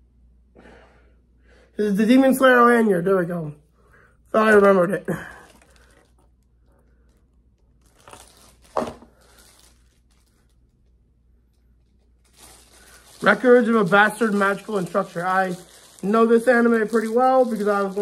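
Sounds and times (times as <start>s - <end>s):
packaging crinkling and tearing: 5.2s - 18.0s
sharp packaging crackle: 5.2s - 18.0s.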